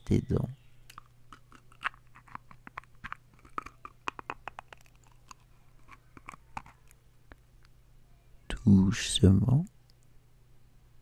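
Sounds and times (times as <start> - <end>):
low steady hum: 0.0 - 11.0
teeth grinding and chewing: 0.9 - 7.0.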